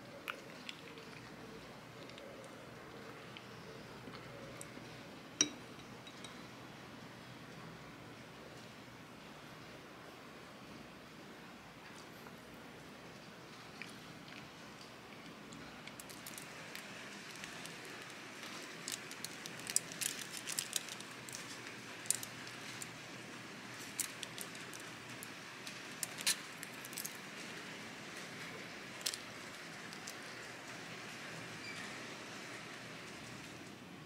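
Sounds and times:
faint steady hiss: 0.0 - 34.0
foil wrapper crinkling: 15.9 - 23.0, 23.6 - 27.5, 28.1 - 30.5.

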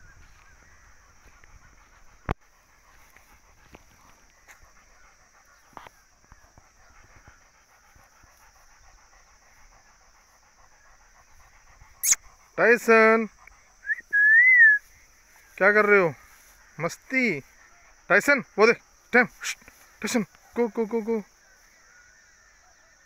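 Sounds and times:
dog panting: 0.3 - 14.2
faint ticks: 19.5 - 20.6.

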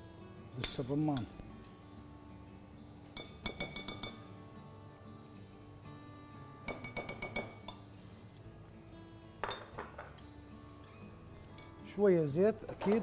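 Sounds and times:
soft background music: 0.0 - 13.0
utensil clinking on glass bowl: 3.2 - 4.2, 9.4 - 10.2, 12.7 - 13.0.

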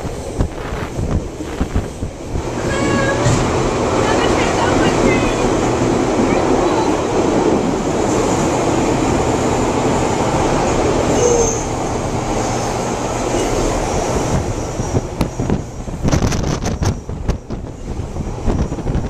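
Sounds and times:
rushing air: 0.0 - 19.0
train wheels rumbling on rails: 0.0 - 19.0
brief squeal: 11.1 - 11.7.

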